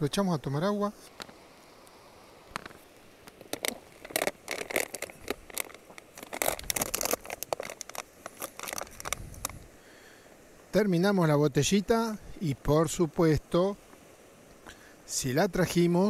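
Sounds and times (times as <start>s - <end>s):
plastic bottle crinkling: 2.5s - 9.6s.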